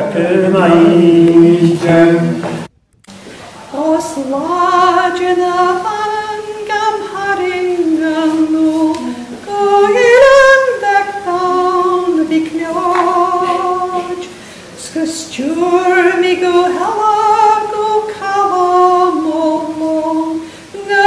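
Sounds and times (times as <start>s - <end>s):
woman singing unaccompanied: 0.0s - 2.7s, 3.7s - 21.0s.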